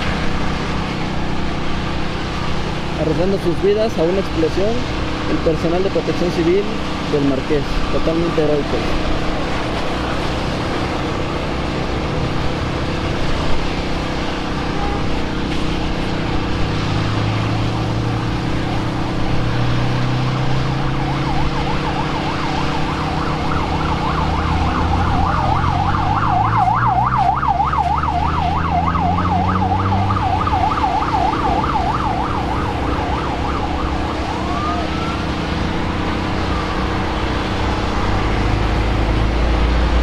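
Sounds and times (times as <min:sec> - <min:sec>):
siren yelping: 0:20.2 - 0:38.5.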